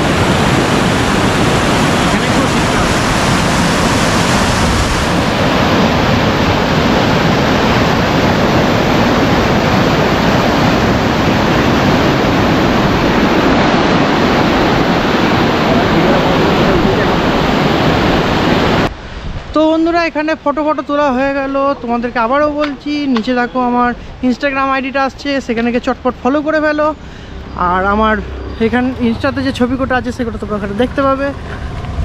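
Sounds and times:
river water rushing: 0:00.0 - 0:20.3.

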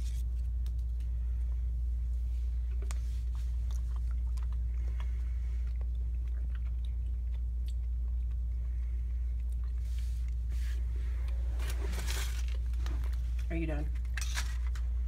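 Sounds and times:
steady low hum: 0:00.0 - 0:15.0
child chewing chocolate: 0:02.5 - 0:13.4.

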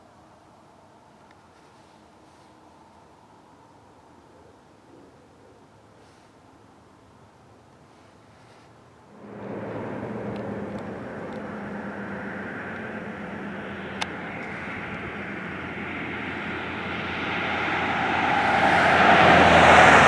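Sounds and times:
car passing on highway: 0:09.1 - 0:20.0.

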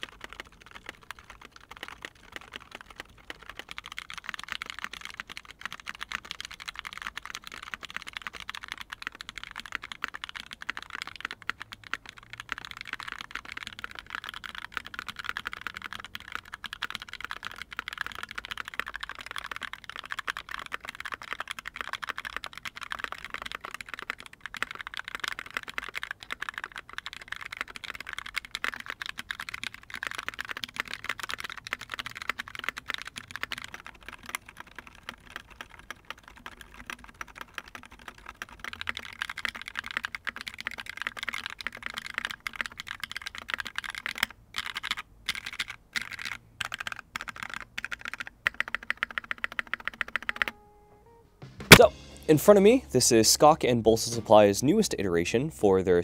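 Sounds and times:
typing on mechanical keyboard: 0:00.0 - 0:50.6.

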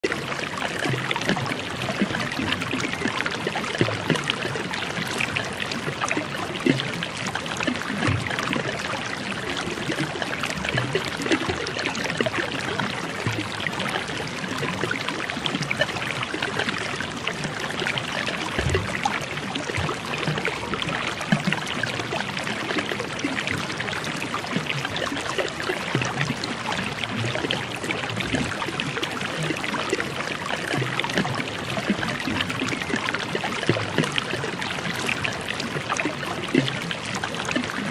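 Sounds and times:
stream water running: 0:00.0 - 0:37.9.

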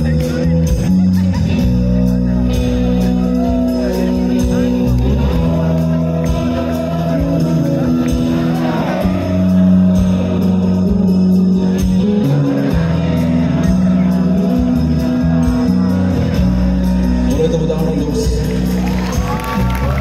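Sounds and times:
live rock band playing: 0:00.0 - 0:20.0
man's voice on microphone: 0:15.4 - 0:19.3.

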